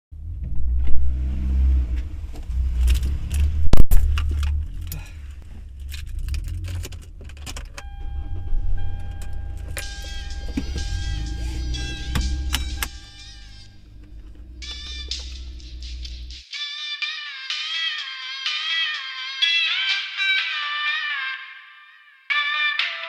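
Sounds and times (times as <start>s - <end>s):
car door shutting: 6.8s - 15.6s
steady high tone: 7.8s - 16.4s
music: 9.7s - 23.0s.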